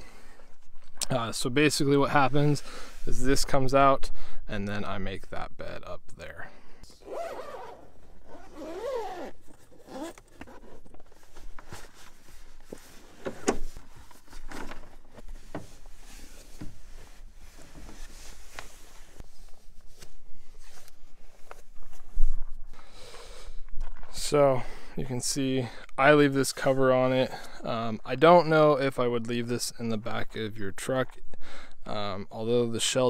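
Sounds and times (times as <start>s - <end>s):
zipper being pulled open: 7.0s - 11.2s.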